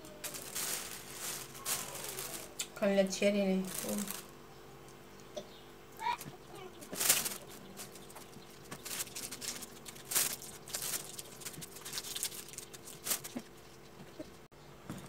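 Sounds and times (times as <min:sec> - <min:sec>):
plastic bag crinkling: 0:00.0 - 0:04.4, 0:06.0 - 0:13.9
cherries pulled from stems: 0:00.0 - 0:14.3
faint steady hum: 0:00.0 - 0:15.0.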